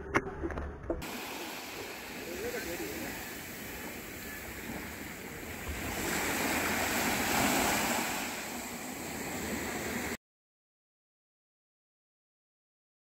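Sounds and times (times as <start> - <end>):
small waves breaking on beach: 1.0 - 10.2.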